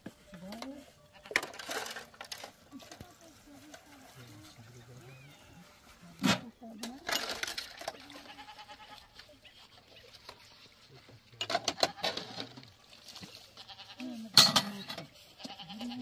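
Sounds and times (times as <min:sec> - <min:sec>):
goat bleating: 0:08.0 - 0:09.3, 0:13.5 - 0:14.3, 0:15.3 - 0:16.0.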